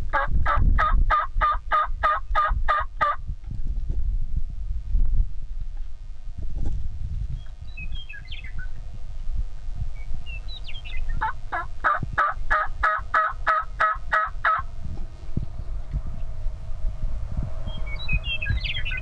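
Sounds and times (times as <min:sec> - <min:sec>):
wind rumble on microphone: 0:00.0 - 0:19.0
turkey yelping: 0:00.2 - 0:03.2, 0:11.2 - 0:14.7
songbird chirps: 0:07.3 - 0:08.9, 0:09.9 - 0:11.3, 0:17.6 - 0:19.0.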